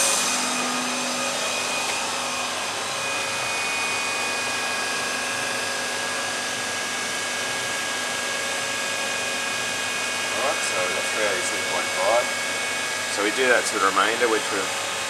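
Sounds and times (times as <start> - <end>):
machinery motor whir: 0.0 - 5.4.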